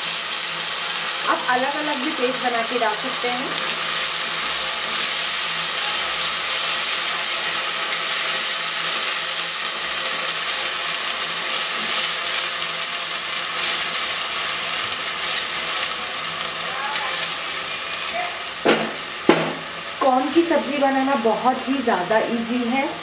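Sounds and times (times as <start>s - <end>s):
paste sizzling in hot oil: 0.0s - 23.0s.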